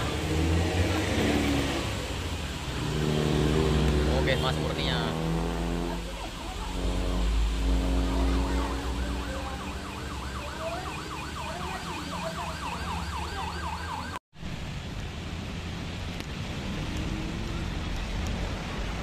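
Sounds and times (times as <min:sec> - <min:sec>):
rain hiss: 0:00.0 - 0:12.4, 0:14.4 - 0:19.0
warbling trumpet horn: 0:02.7 - 0:14.0.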